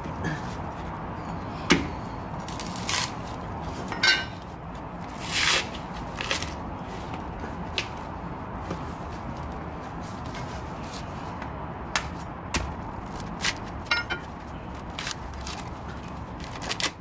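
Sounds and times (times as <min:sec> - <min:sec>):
coconut husk cracking and tearing: 0:02.4 - 0:03.2, 0:05.1 - 0:06.6, 0:14.8 - 0:17.0.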